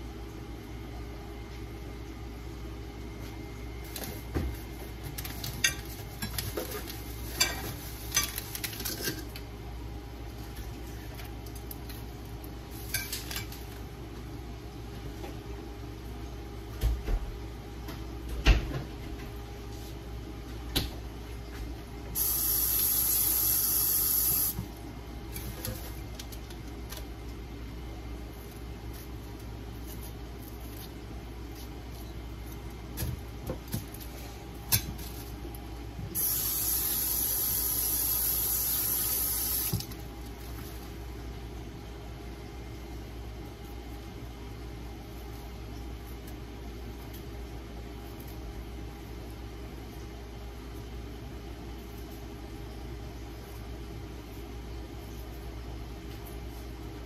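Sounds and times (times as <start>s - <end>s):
kitchen tap running: 36.2s - 40.0s.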